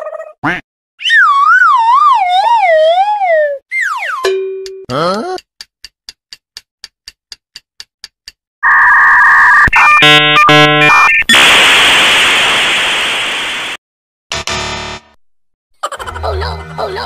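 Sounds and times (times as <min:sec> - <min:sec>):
electronic buzzer tones: 0:08.6 - 0:11.3, 0:14.3 - 0:15.2
loud hiss: 0:11.3 - 0:13.8.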